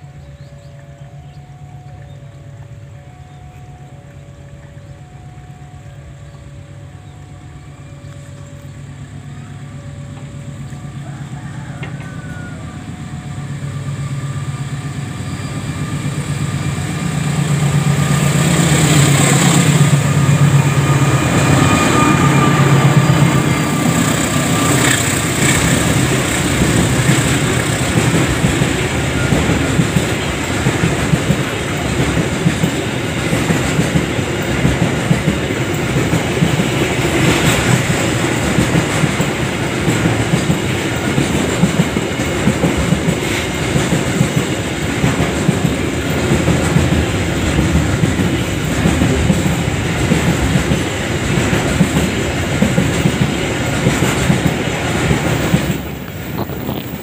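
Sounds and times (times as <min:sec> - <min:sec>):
diesel locomotive engine: 0:00.0 - 0:57.0
train wheels clickety-clack: 0:10.1 - 0:12.7, 0:15.4 - 0:57.0.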